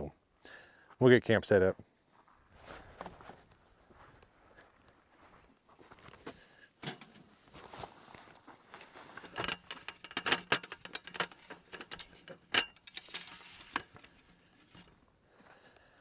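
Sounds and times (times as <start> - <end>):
wooden slats and metal legs clicking: 6.8 - 7.2, 9.2 - 14.9.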